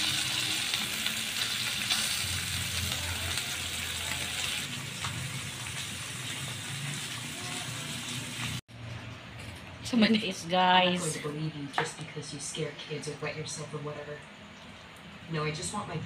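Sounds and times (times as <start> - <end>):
meat sizzling on a grill pan: 0.0 - 8.6.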